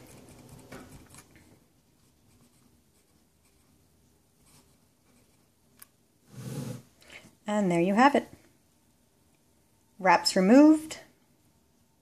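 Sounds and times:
fingertip rubbing against sponge: 0:06.3 - 0:06.9.

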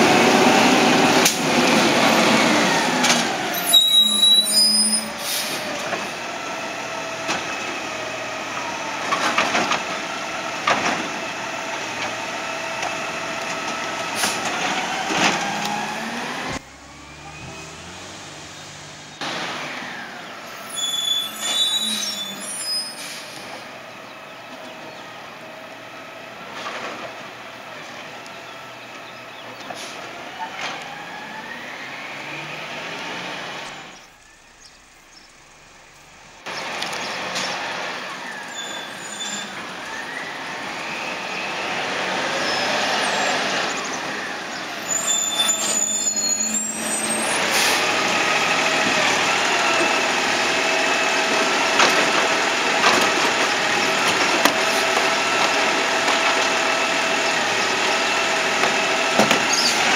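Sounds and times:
truck diesel engine: 0:00.0 - 0:59.9
air brake hisses: 0:05.0 - 0:05.7, 0:47.4 - 0:47.9.

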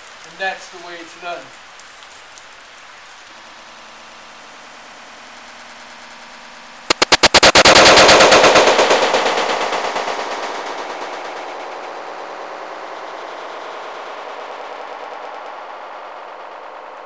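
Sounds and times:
stuttering crackle: 0:04.8 - 0:17.0
slowed gunshot report: 0:06.9 - 0:15.0.

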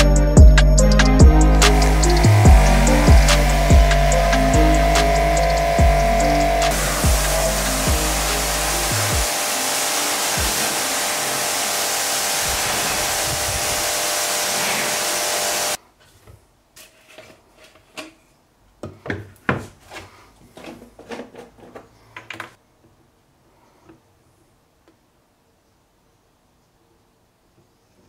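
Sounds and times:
pressure washer spraying: 0:00.8 - 0:15.8.

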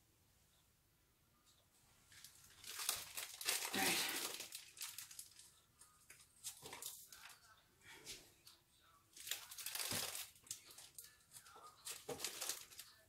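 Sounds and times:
food packaging crinkling: 0:02.1 - 0:07.4, 0:09.2 - 0:13.0.

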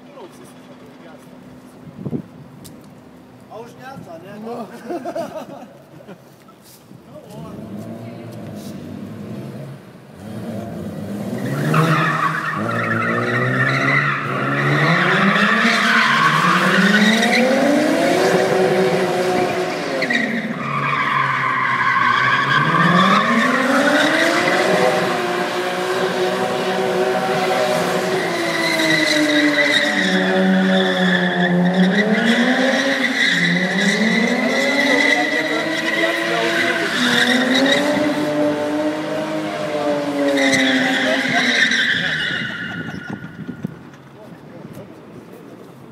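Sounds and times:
car engine revving: 0:07.5 - 0:43.4
tyres squealing: 0:40.2 - 0:43.6.

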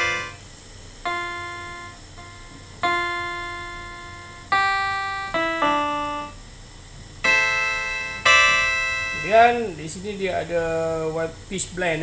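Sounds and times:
electronic keyboard piano notes: 0:00.0 - 0:06.5, 0:07.2 - 0:10.5.

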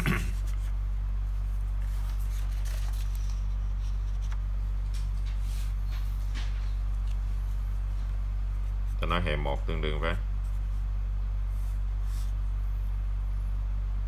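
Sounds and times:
low electrical hum: 0:00.0 - 0:14.0
paper rustling: 0:01.6 - 0:08.1.

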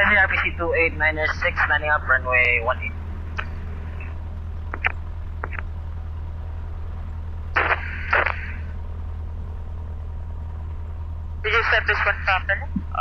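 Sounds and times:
aircraft engine idling: 0:00.0 - 0:13.0
short clicks and crackles: 0:04.7 - 0:05.7, 0:07.5 - 0:08.5.

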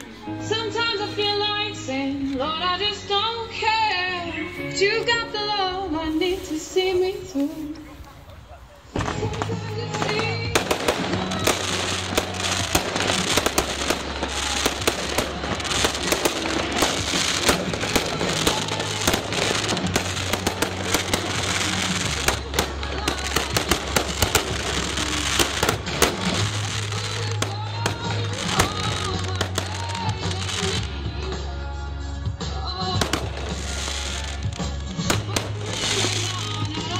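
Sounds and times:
fireworks bursting and crackling: 0:06.0 - 0:31.5, 0:32.4 - 0:36.9
loud music with deep bass: 0:09.0 - 0:36.9.

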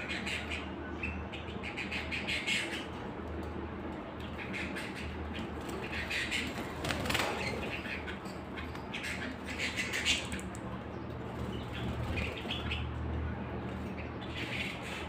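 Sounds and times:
canaries chirping: 0:00.0 - 0:15.0
wings fluttering: 0:04.4 - 0:10.6.

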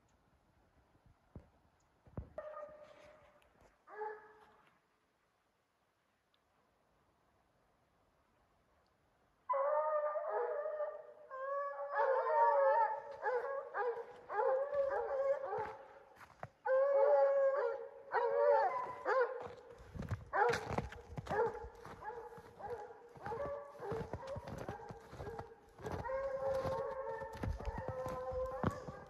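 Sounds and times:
hounds baying: 0:09.5 - 0:29.0.

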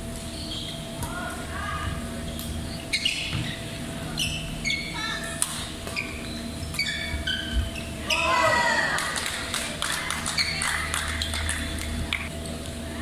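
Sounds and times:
sneakers squeaking on court: 0:00.3 - 0:01.0, 0:02.2 - 0:05.0, 0:05.8 - 0:08.3.

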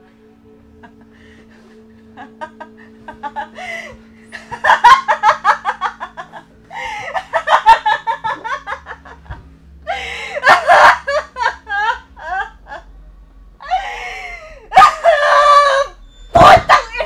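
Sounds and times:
man laughing hysterically: 0:02.0 - 0:12.9.

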